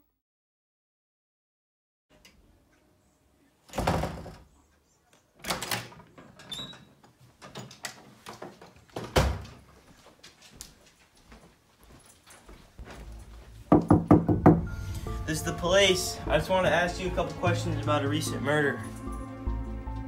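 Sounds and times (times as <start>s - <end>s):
wooden door thuds: 3.7s - 4.5s, 9.0s - 9.6s, 13.7s - 14.7s.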